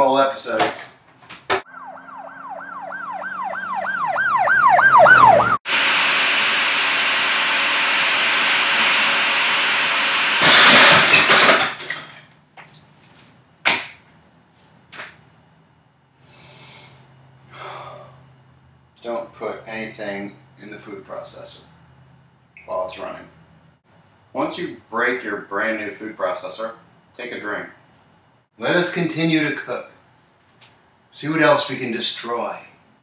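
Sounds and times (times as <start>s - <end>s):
siren-like warbling tone: 1.7s - 5.6s
food processor motor running: 5.7s - 10.5s
harsh clatter of breaking machine: 8.8s - 12.3s.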